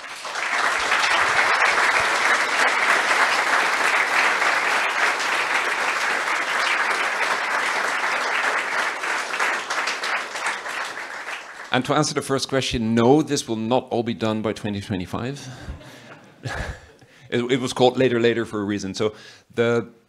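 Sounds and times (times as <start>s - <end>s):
audience applauding: 0.0s - 12.3s.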